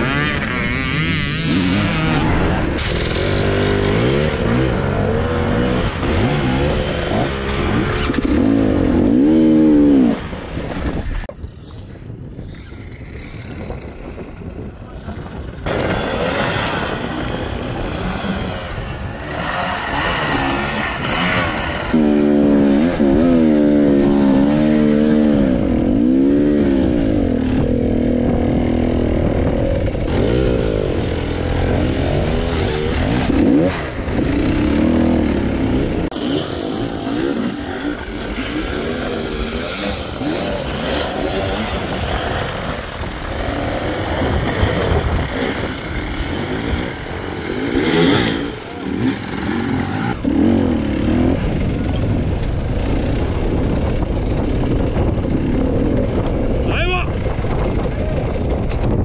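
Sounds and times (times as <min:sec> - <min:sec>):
dirt bike engines revving: 0:00.0 - 0:59.0.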